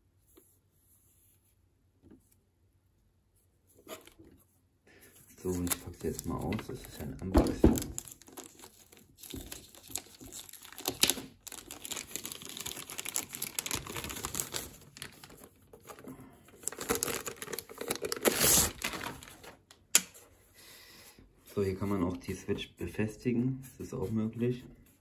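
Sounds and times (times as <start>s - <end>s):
plastic wrapping crinkling: 5.4s - 19.7s.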